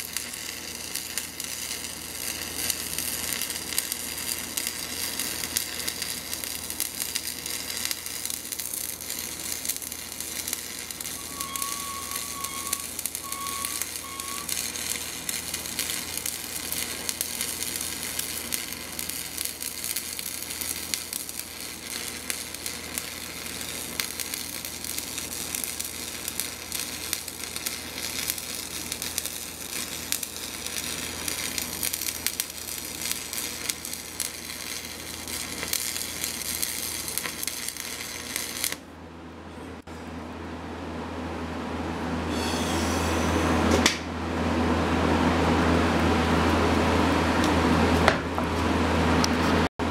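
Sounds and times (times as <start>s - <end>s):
arc welding crackling: 0.0s - 38.9s.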